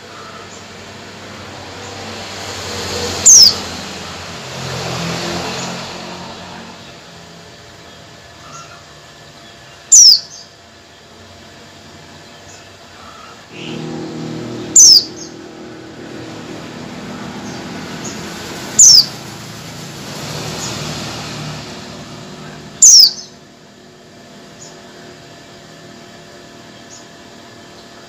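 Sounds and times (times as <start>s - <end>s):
low rumble: 13.5s - 24.3s
bird calls sweeping down: 18.7s - 19.2s.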